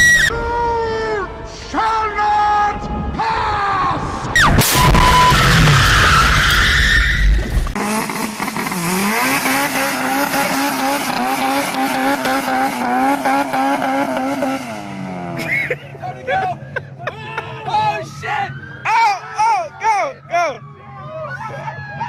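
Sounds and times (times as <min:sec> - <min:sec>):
tyre squeal: 0:00.0 - 0:00.4, 0:04.4 - 0:07.8
car engine at high revs: 0:07.4 - 0:15.7.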